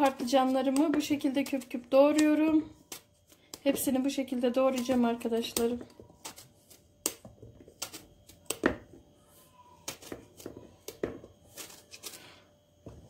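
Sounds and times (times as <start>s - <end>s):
knife cutting eggplant: 9.8s - 12.2s.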